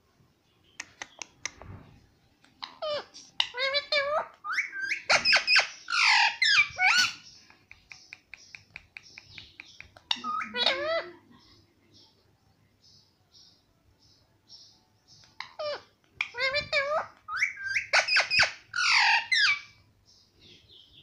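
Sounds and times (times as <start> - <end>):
parakeet chattering: 2.5 - 11.1, 15.2 - 19.8.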